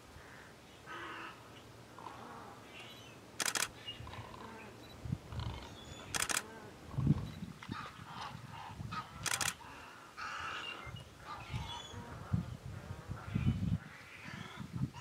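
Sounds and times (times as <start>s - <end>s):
bursts of rapid clicks: 3.4s - 3.7s, 6.1s - 6.4s, 9.2s - 9.6s.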